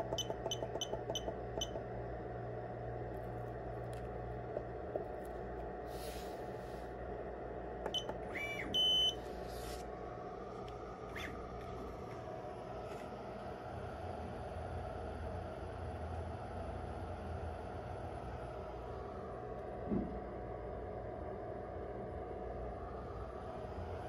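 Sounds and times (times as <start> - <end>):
key beep: 0.0 - 1.8, 7.9 - 9.2
loud steady high beep: 0.0 - 1.8, 7.9 - 9.2
steady low hum: 0.0 - 24.0
stepper motors whining: 7.8 - 9.2.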